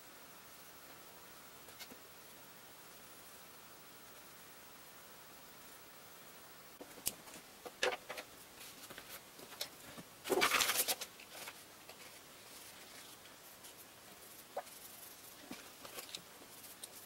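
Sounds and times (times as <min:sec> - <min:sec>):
paper rustle: 0:08.1 - 0:17.0.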